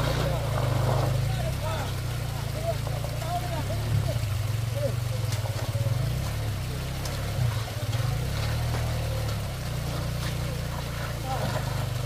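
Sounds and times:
faint knocks of people scrambling: 0.0 - 12.0
water trickling: 0.0 - 12.0.

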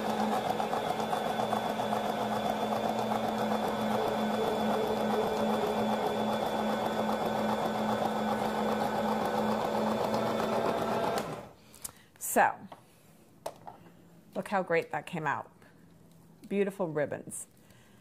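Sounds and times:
spiralizer motor humming: 0.0 - 11.4.

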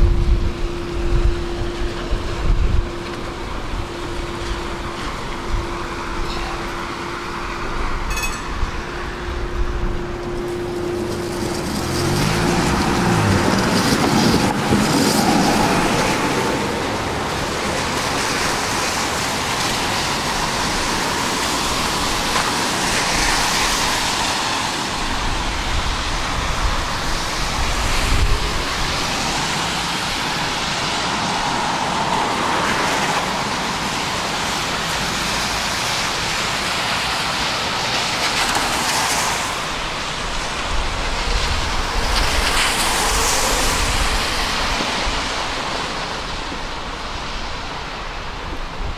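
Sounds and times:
tram motor whine: 0.0 - 23.3
wheels rolling on rail: 0.0 - 48.9.

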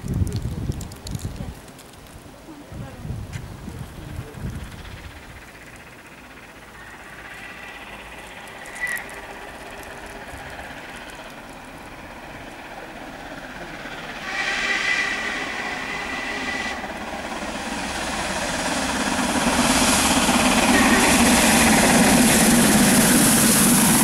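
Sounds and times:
steam locomotive exhaust: 3.8 - 24.0
steam locomotive whistle: 8.6 - 9.1, 14.2 - 17.0, 19.8 - 22.0.

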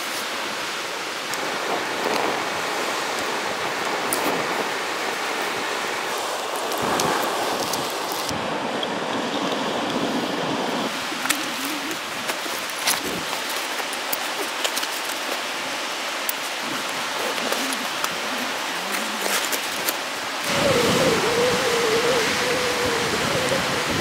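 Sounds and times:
steady hiss: 0.0 - 24.0
wind-like rush with wavering tone: 15.8 - 24.0.

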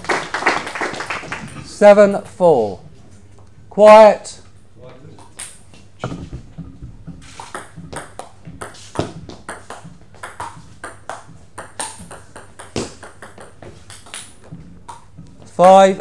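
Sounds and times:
table tennis ball clicking: 9.5 - 15.1.

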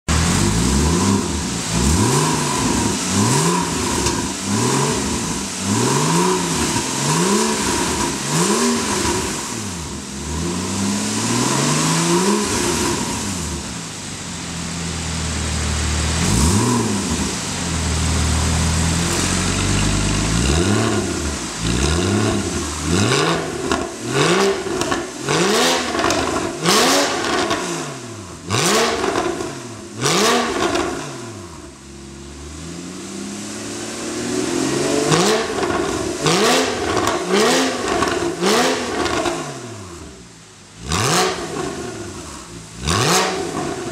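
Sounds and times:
car engine revving: 0.0 - 43.9
exhaust crackling pops: 19.0 - 25.2, 25.9 - 27.7, 35.5 - 36.2, 36.8 - 39.4.

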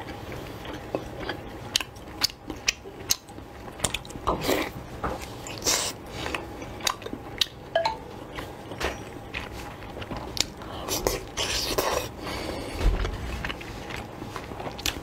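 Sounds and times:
chewing squelches: 0.0 - 15.0.

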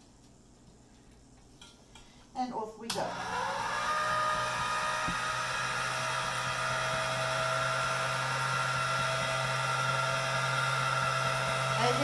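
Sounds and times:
pasta machine motor humming: 3.1 - 12.0.

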